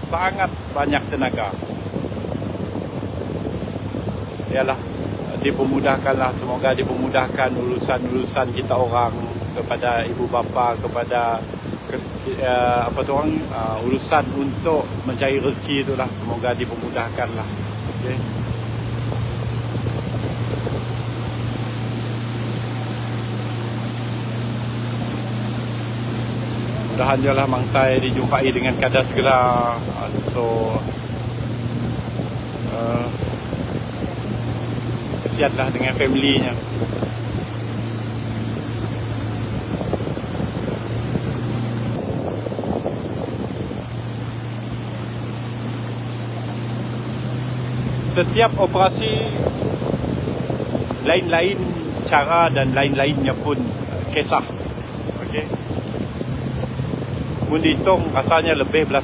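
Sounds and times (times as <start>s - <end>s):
boat engine running: 0.0s - 59.0s
water noise: 0.0s - 59.0s
wind noise: 0.0s - 59.0s.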